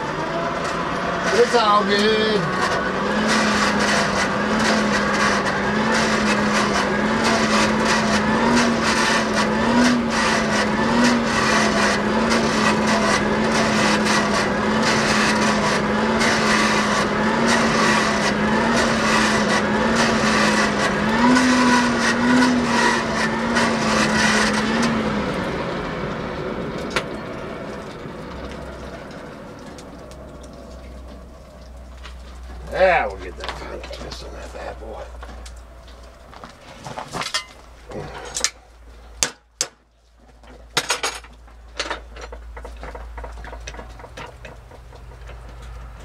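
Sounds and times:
forge blower humming: 0.0s - 31.7s
fire roaring and crackling: 0.0s - 39.2s.

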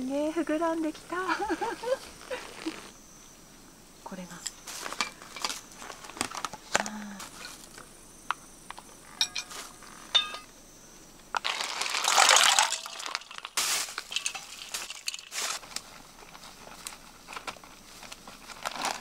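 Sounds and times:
tableware clinking: 9.2s - 10.5s
loud crinkling rustle: 11.4s - 19.0s.

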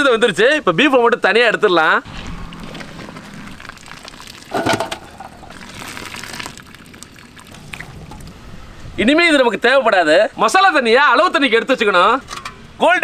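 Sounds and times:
liquid sloshing and dripping: 2.1s - 8.4s.

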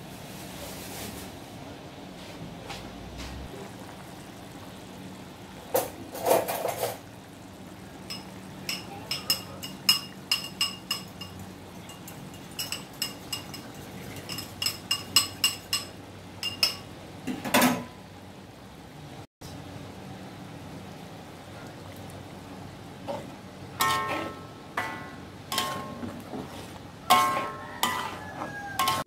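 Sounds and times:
spatula clinking on metal wok: 8.1s - 16.9s, 23.8s - 26.0s, 27.0s - 29.0s
spatula scraping wok: 23.0s - 29.0s.

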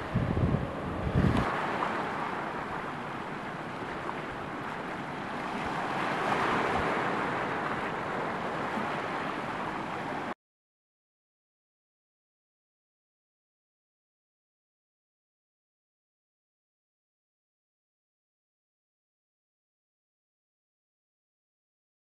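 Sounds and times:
wind rumble on microphone: 0.0s - 10.3s
surf washing over rocks: 0.0s - 10.4s.

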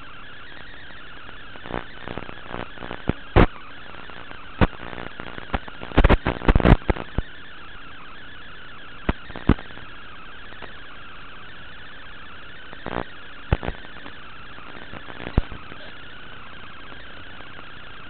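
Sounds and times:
static hiss with warbling whistle: 0.0s - 18.0s
sharp clicks and pops: 0.5s - 7.3s, 9.0s - 9.9s, 10.5s - 10.8s, 12.7s - 15.7s.

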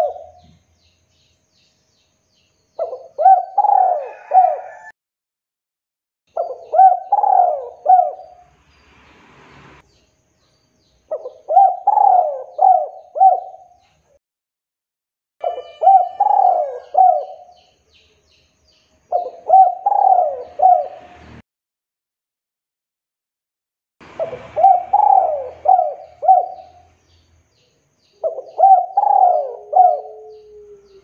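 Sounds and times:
dove cooing: 0.0s - 0.6s, 2.8s - 4.9s, 6.4s - 8.4s, 11.1s - 13.8s, 15.4s - 17.5s, 19.1s - 21.1s, 24.1s - 26.9s, 28.2s - 31.0s.

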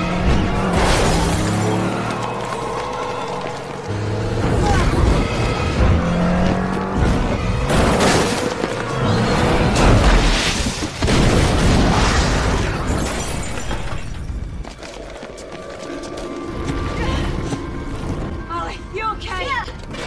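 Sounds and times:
glass shattering: 0.7s - 1.9s, 9.8s - 14.3s.

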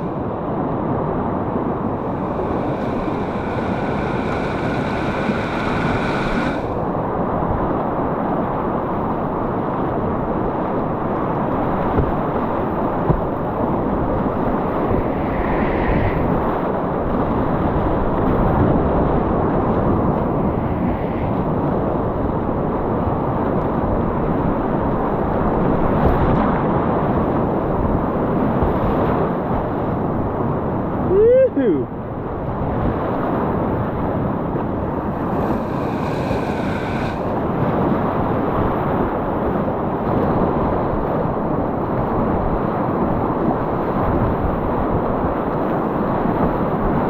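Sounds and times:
whitewater rapids rushing: 1.8s - 6.8s, 34.8s - 37.5s.

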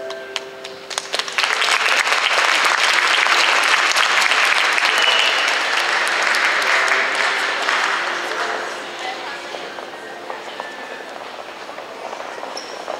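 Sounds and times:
audience applause: 0.6s - 10.0s.

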